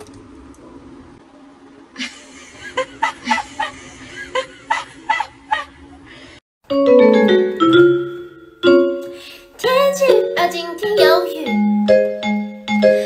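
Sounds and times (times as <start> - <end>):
marimba-like mallet music: 6.7 - 9.4, 10.1 - 13.0.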